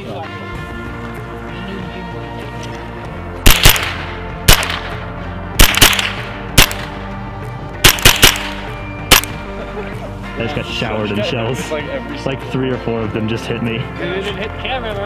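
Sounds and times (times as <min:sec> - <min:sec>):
background music: 0:00.0 - 0:15.0
rifle shots with echo: 0:03.4 - 0:07.1, 0:07.8 - 0:09.4.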